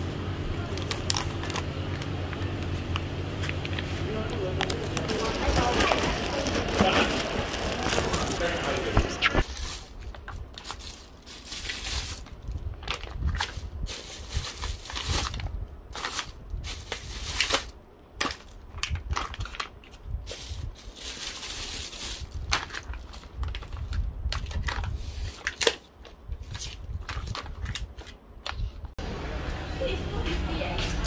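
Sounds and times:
plastic bag rustling: 0.6 - 28.2
drink pouches laid down: 3.4 - 10.8.

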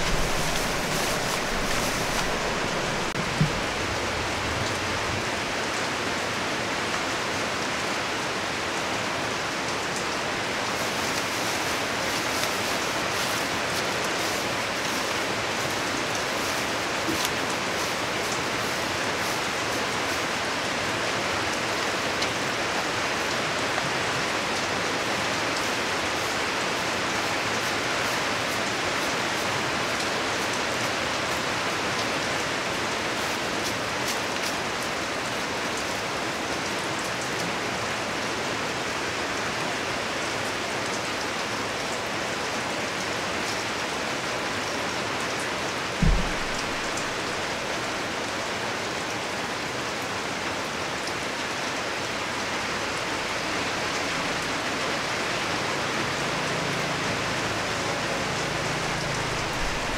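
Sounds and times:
steady rain: 0.0 - 59.9
low thump: 46.0 - 47.4.

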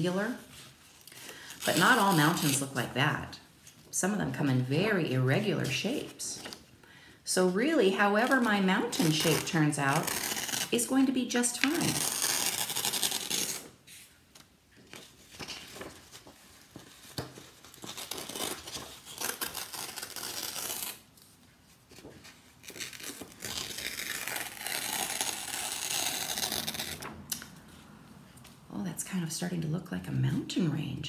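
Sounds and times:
paper tearing: 1.6 - 2.8, 8.1 - 10.9, 11.5 - 13.8, 17.1 - 21.1, 22.6 - 27.2.

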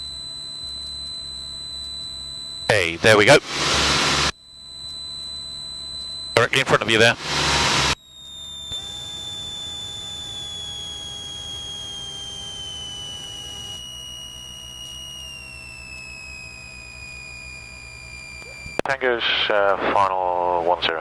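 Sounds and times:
mid-pitched tone: 0.0 - 19.0
steady high whine: 0.0 - 21.0
low engine drone: 2.6 - 4.8, 6.4 - 8.0.

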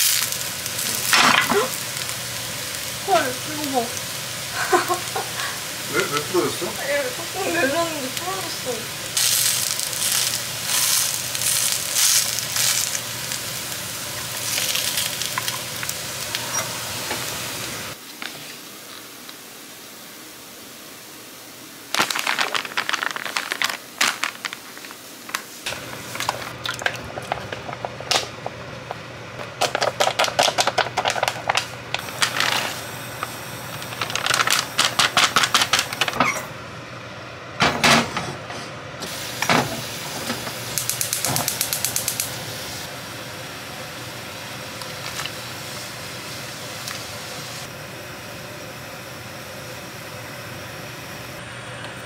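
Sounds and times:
plastic bags crinkling: 9.2 - 16.4, 21.9 - 27.7, 33.7 - 36.2.

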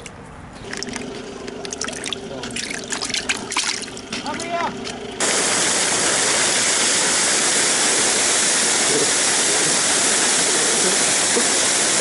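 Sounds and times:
water splashing into river: 0.6 - 4.1
water gushing from tank outlet: 0.6 - 12.0.

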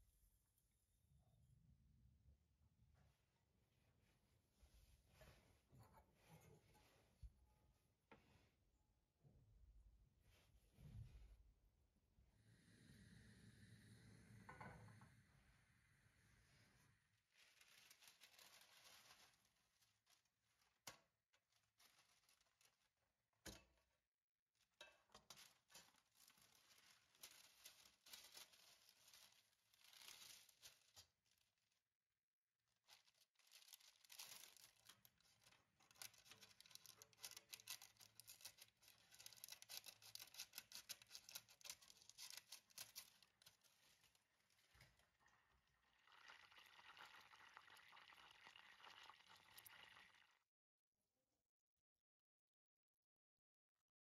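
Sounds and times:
baking paper rustling: 17.3 - 23.1, 25.2 - 31.5, 32.7 - 44.7.

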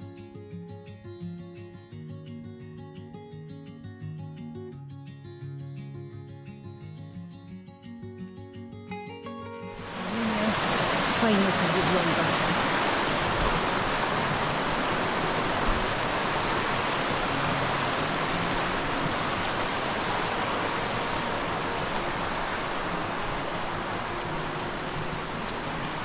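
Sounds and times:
river water flowing: 9.8 - 26.0.

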